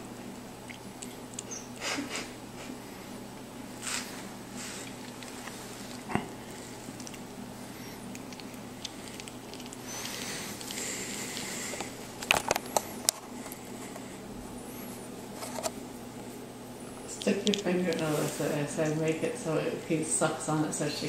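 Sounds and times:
low steady hum: 0.0s - 21.0s
baby sucking pacifier: 4.7s - 12.0s.

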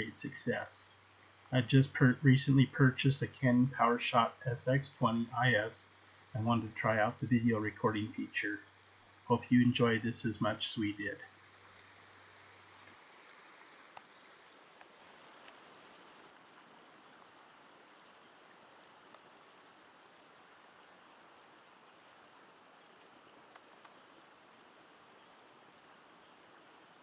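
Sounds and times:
creek flowing: 0.0s - 27.0s
faint ticks: 13.9s - 14.1s, 14.7s - 15.6s, 19.0s - 19.3s, 22.9s - 24.5s.

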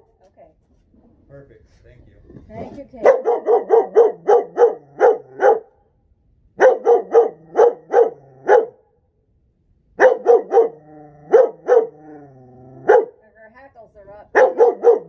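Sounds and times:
young dog barking: 3.0s - 5.7s, 6.6s - 8.8s, 10.0s - 12.0s, 12.8s - 13.2s, 14.3s - 15.0s.

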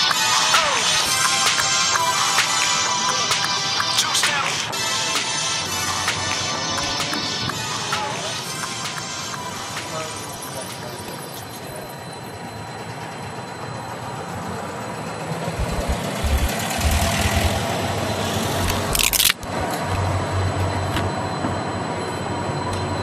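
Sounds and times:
street traffic: 0.0s - 23.0s
vehicle passing: 15.6s - 19.0s.

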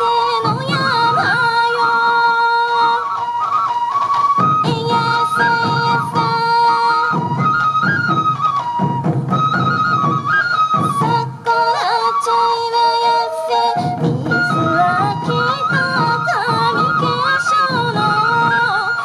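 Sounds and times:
bamboo flutes playing melody: 0.0s - 19.0s
hand drums beating: 4.0s - 11.6s, 13.8s - 19.0s.

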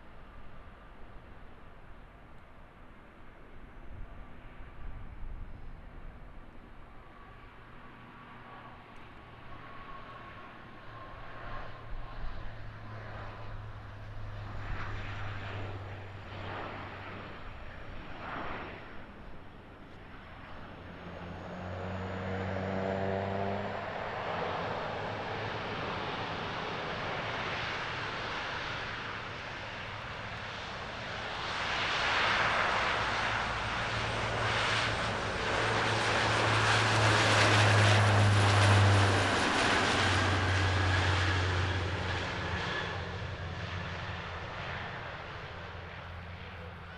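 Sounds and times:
turboprop propeller drone: 3.2s - 46.9s
jet airliner climbing away: 14.0s - 46.9s.

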